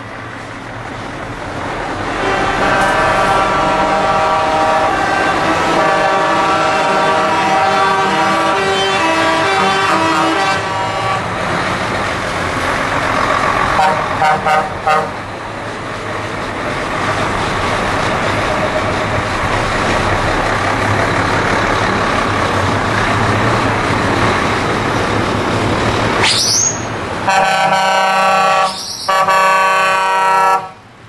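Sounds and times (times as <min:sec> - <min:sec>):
diesel trucks rumbling: 0:00.0 - 0:31.0
truck air horn: 0:02.1 - 0:11.5, 0:13.7 - 0:15.2, 0:26.3 - 0:30.9
short horn toots: 0:02.2 - 0:11.2, 0:26.3 - 0:30.8.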